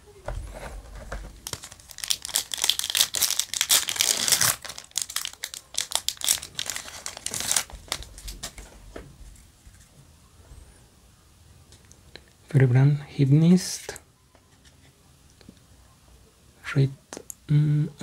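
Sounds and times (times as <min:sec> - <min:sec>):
wrapper crinkling and tearing: 0:01.0 - 0:08.7.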